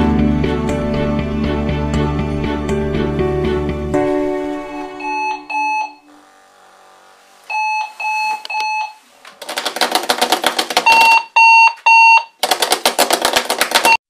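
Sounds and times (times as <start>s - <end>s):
alarm clock electronic beeps: 4.7s - 6.1s, 7.5s - 9.0s, 10.8s - 12.4s
rapid pulsing alarm buzz: 4.8s - 8.5s.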